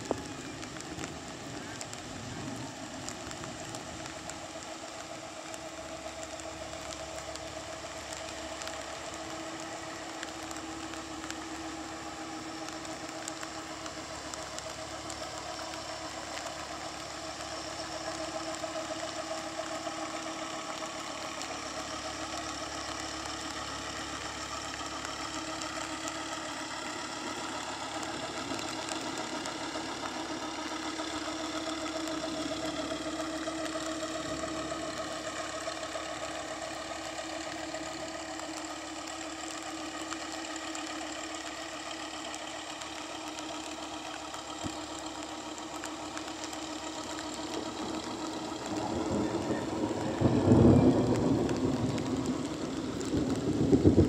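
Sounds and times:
heavy rain on water: 0:00.0 - 0:54.0
boat engine chugging: 0:43.6 - 0:54.0
low rumble of thunder: 0:47.5 - 0:54.0.

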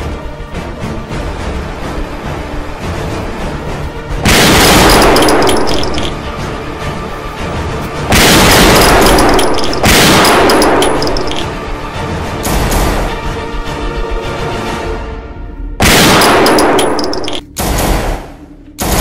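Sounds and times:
background music: 0:00.0 - 0:19.0
gunshot sound effects: 0:04.3 - 0:06.1, 0:08.1 - 0:11.4, 0:15.8 - 0:19.0.

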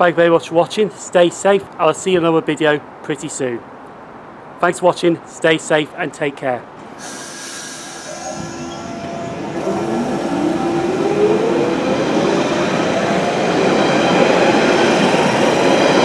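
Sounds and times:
rail noise: 0:06.7 - 0:16.0
train motor whine: 0:06.8 - 0:16.0.

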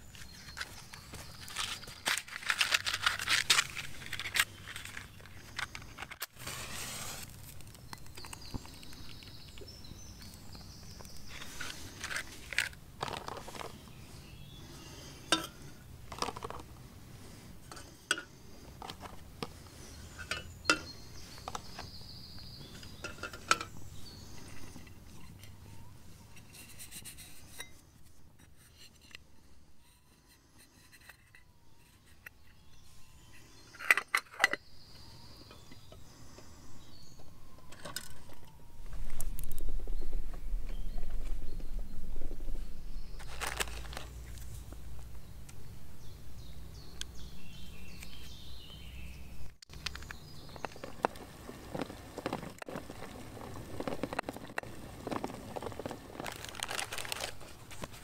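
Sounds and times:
metal cookware clinking: 0:15.3 - 0:15.6, 0:20.2 - 0:21.0, 0:23.0 - 0:23.7.

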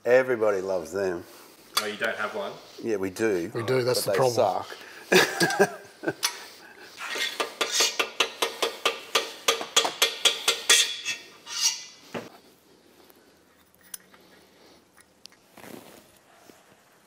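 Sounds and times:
hammer tapping on metal: 0:07.4 - 0:11.0.

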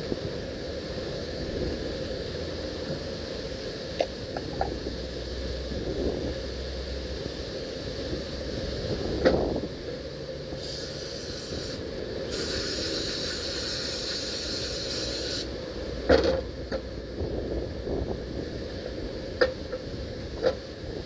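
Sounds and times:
aerosol can spraying: 0:10.6 - 0:15.5.

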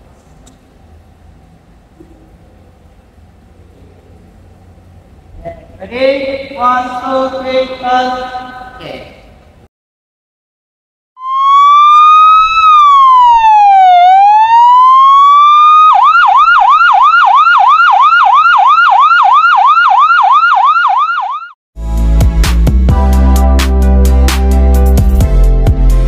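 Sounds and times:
ambulance siren wailing and yelping: 0:11.2 - 0:21.6
music: 0:21.8 - 0:26.0.

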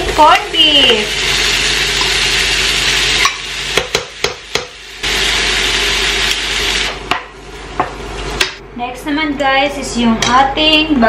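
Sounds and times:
garlic and onion sizzling in a wok: 0:00.0 - 0:08.6.

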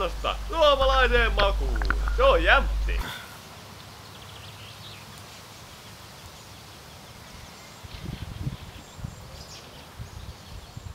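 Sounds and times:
low bumps: 0:00.0 - 0:03.2
faint steady hiss: 0:00.0 - 0:10.9.

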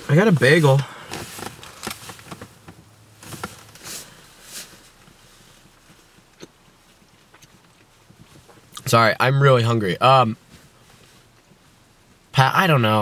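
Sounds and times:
bagel rustling and clicks: 0:00.0 - 0:08.7.

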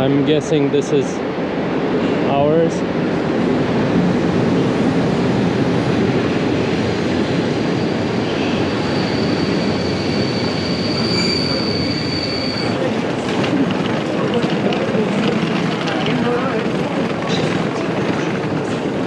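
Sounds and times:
train carriages rumbling past: 0:00.0 - 0:19.0
high wheel squeal: 0:07.2 - 0:13.1.

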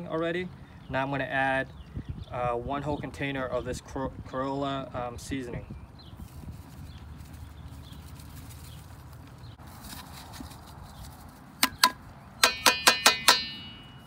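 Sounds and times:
metal container knocking on metal pot: 0:11.6 - 0:13.8.

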